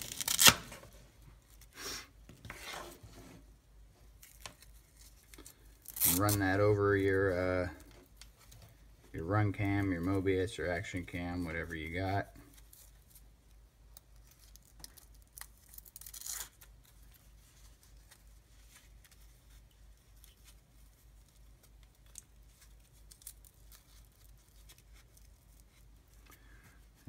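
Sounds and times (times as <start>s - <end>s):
velcro strap ripping: 0.0s - 0.8s, 4.2s - 6.6s, 14.2s - 17.0s, 21.3s - 25.8s.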